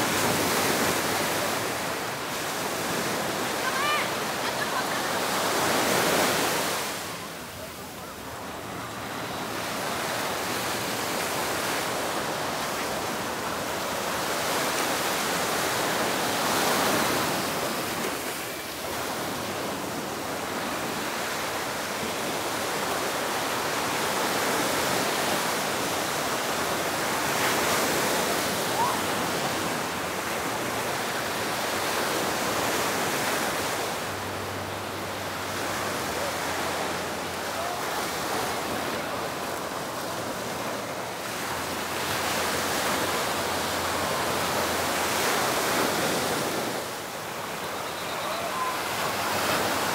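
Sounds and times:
waves breaking on beach: 0.0 - 49.9.

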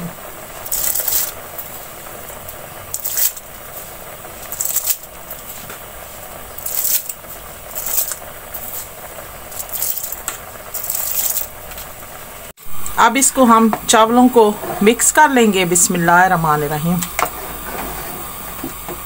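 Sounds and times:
broth boiling: 0.0 - 19.0
rice splashing into pot: 0.6 - 11.8.

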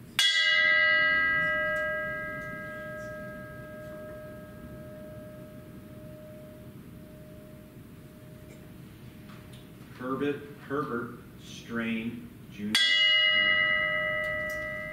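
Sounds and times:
bell ringing: 0.2 - 8.8, 12.8 - 14.9.

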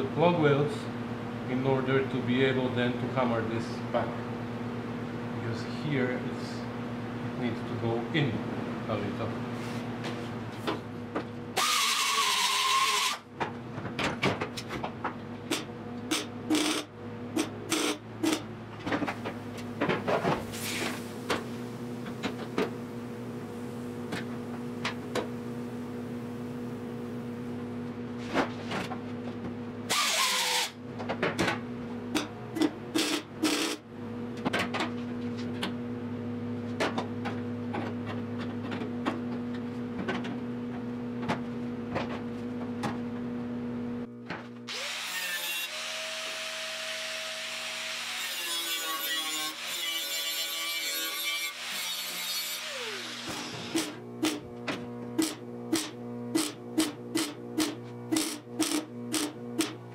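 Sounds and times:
welder bursts: 11.6 - 13.2, 29.9 - 30.8
steady hum: 15.4 - 29.9.

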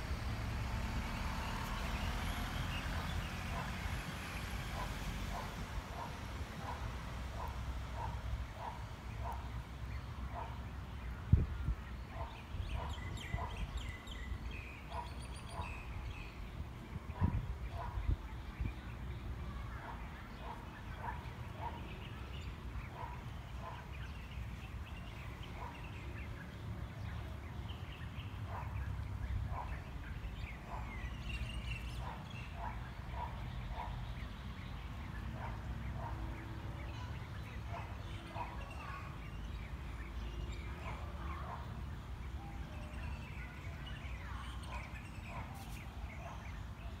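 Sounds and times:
birds chirping: 0.8 - 47.0
wind buffeting microphone: 11.0 - 19.4.

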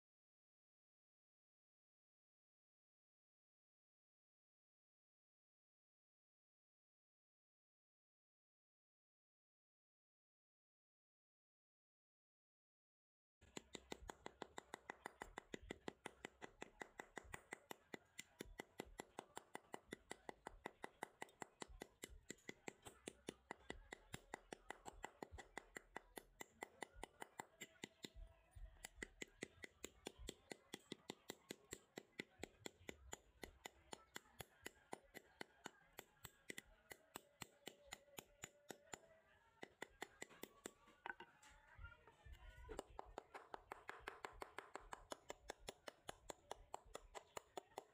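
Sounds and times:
hammer tapping on metal rod: 13.4 - 41.5, 42.6 - 47.9.

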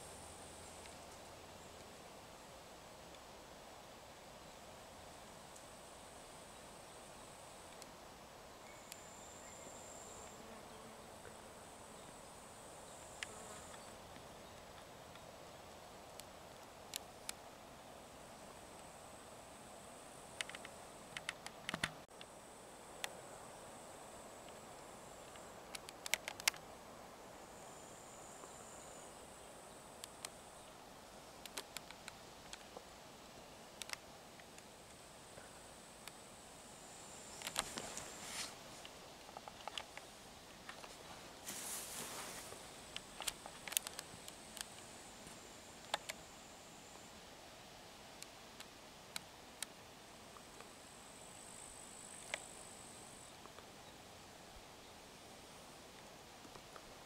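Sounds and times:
thin high hiss: 0.0 - 57.0
high-pitched insect trill: 8.6 - 10.9
sharp clicks: 20.4 - 22.3, 25.3 - 26.6, 31.4 - 32.7.

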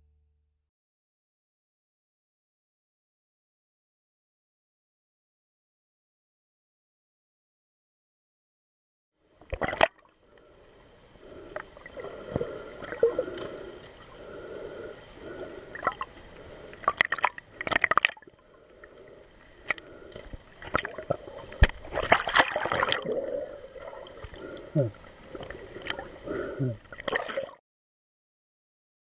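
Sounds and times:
muffled water gurgling underwater: 11.2 - 27.6.

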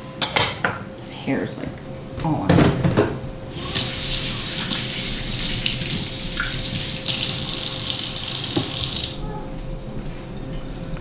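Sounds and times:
faucet running into sink: 3.5 - 9.2.

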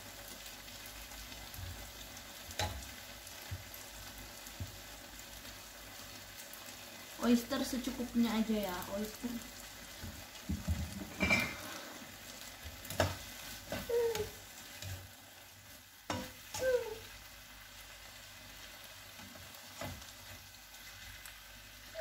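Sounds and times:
food sizzling in a frying pan: 0.0 - 22.0
spatula clacking against pan: 16.1 - 16.6.

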